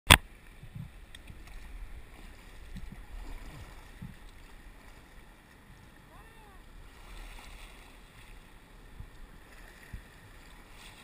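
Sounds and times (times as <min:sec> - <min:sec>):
river water splashing: 0:00.1 - 0:11.0
wind on microphone: 0:00.6 - 0:04.4.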